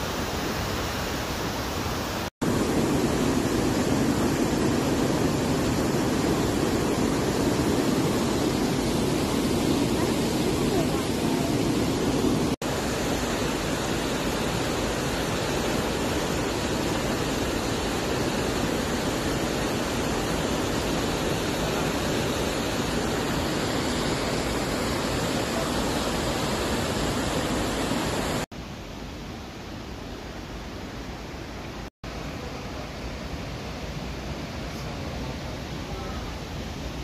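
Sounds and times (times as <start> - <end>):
waterfall rushing: 0.0 - 28.5.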